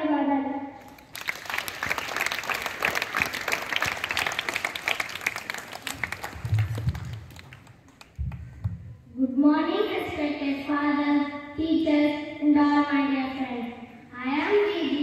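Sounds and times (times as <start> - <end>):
children applauding: 0.9 - 8.5.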